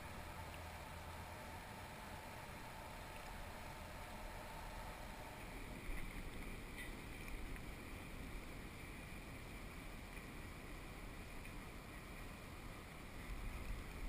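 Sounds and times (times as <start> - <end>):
small ticks: 2.8 - 4.1, 5.8 - 8.1.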